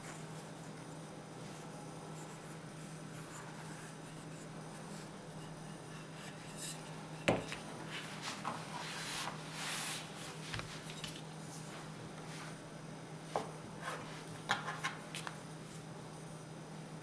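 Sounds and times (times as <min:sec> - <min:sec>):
steady low hum: 0:00.0 - 0:17.0
dough rustling and tapping: 0:03.1 - 0:09.4.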